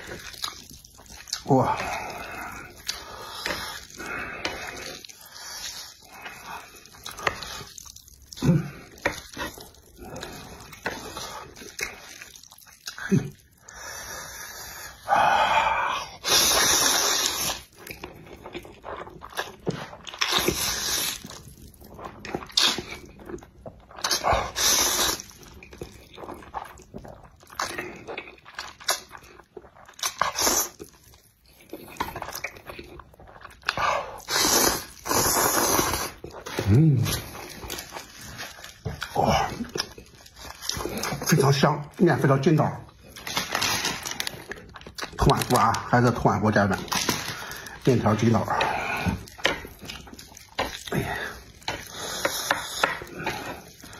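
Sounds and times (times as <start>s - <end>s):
smacking chewing: 0.0s - 1.9s, 2.6s - 13.7s, 46.8s - 53.9s
loud noodle slurps: 16.2s - 17.8s, 20.2s - 21.4s, 24.0s - 25.4s, 30.1s - 30.8s, 34.2s - 37.5s.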